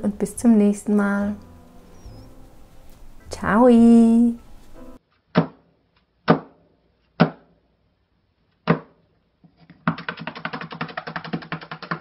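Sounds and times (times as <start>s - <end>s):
fast even clatter of clicks: 9.8s - 12.0s.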